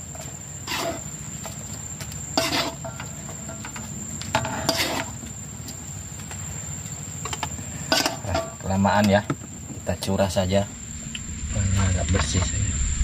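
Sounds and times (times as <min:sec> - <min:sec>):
steady high-pitched whine: 0:00.0 - 0:13.0
metal spatula scraping a wok: 0:00.2 - 0:01.1, 0:02.3 - 0:05.2, 0:07.8 - 0:08.5.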